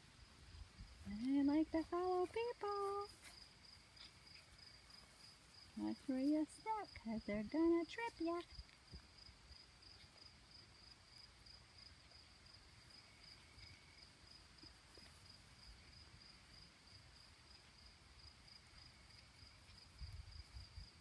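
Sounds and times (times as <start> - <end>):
insect chirping trill: 0.1 - 21.0.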